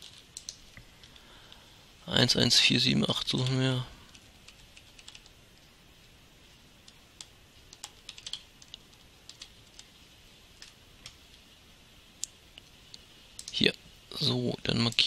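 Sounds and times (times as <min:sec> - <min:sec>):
computer keys and mouse clicking: 0:00.0 - 0:01.2, 0:04.1 - 0:05.3, 0:06.8 - 0:09.9, 0:13.4 - 0:13.6.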